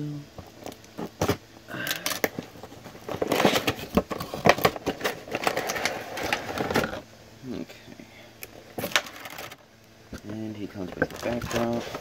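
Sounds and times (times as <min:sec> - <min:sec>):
plastic and cardboard rustling: 0:02.0 - 0:07.0, 0:08.5 - 0:09.6, 0:10.2 - 0:12.0.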